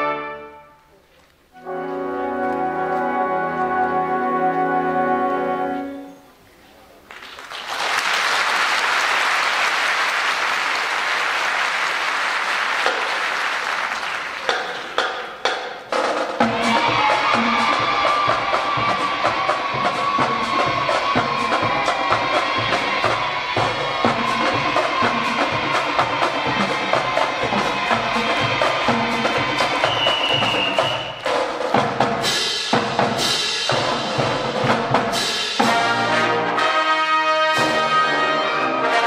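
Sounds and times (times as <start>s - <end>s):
marching band playing: 0.0s - 0.8s, 1.6s - 6.0s, 9.9s - 39.0s
drum beat: 12.7s - 36.1s
wood block beat: 14.4s - 35.3s.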